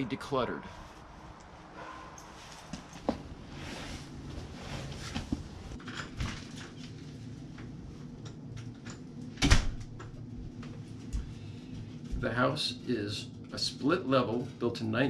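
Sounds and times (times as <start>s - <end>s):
footsteps: 0.8s - 5.8s
front door opening and closing: 8.8s - 10.1s.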